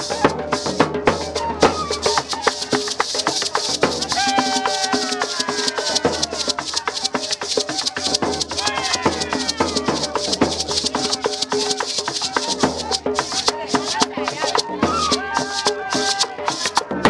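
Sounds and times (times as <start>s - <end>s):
hand drums: 0.0s - 17.0s
shaken rattle: 0.0s - 17.0s.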